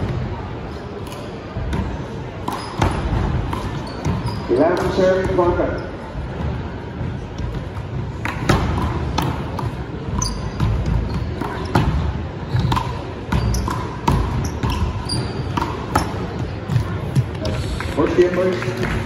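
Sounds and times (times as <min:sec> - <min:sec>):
sneaker squeaks on court: 0:02.5 - 0:06.0, 0:10.1 - 0:16.4.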